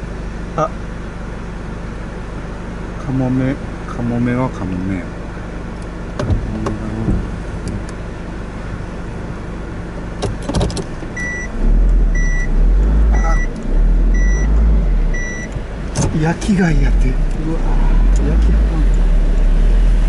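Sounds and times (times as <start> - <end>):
car engine and tyre rumble: 0.0 - 20.0
in-car warning beep: 11.2 - 15.6
loud low rumble: 11.4 - 20.0.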